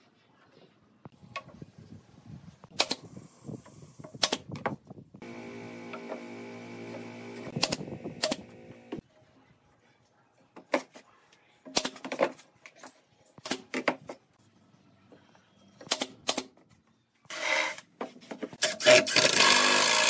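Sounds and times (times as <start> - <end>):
steady machine hum: 5.2 - 9.0.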